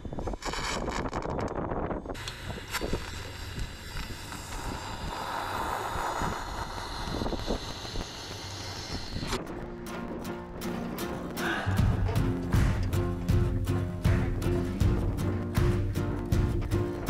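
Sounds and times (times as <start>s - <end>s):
wind rumbling on microphone: 0.0s - 12.2s
welding arc hissing: 0.1s - 9.6s.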